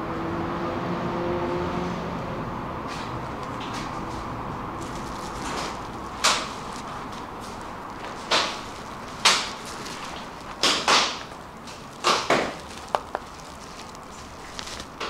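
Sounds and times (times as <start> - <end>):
bubble wrap crinkling: 3.2 - 15.0.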